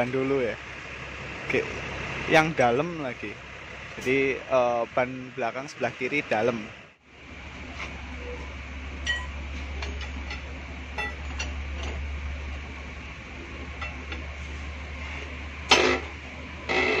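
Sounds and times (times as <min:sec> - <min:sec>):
low steady hum: 0:00.0 - 0:17.0
metal tools clinking: 0:09.0 - 0:12.0.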